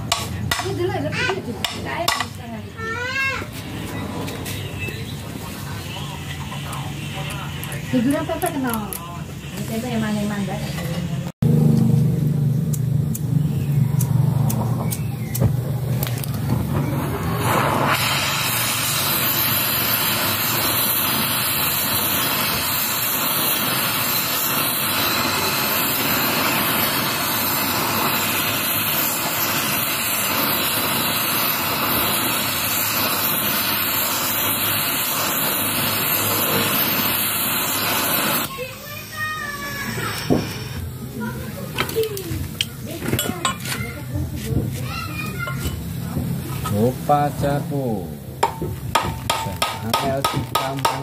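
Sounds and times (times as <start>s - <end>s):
gas torch flame hissing: 0.0s - 51.0s
sharp clicks: 12.7s - 16.4s.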